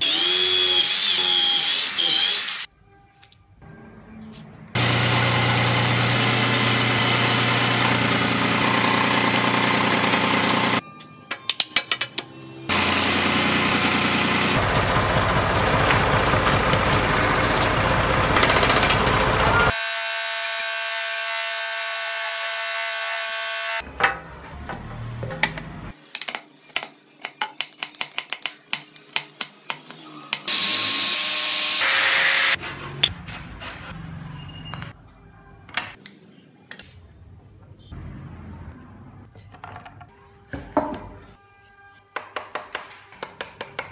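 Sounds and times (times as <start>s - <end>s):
scroll saw cutting wood: 0.0s - 2.7s, 4.8s - 10.8s, 17.4s - 23.8s, 30.5s - 33.0s.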